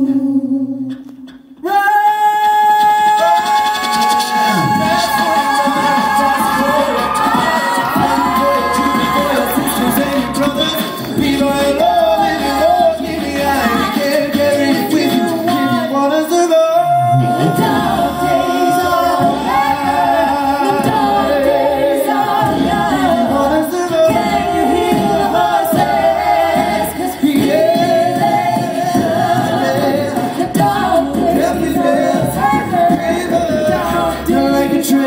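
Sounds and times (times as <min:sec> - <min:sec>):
a cappella group singing: 0:00.0 - 0:35.0
beatboxed beat: 0:02.4 - 0:35.0.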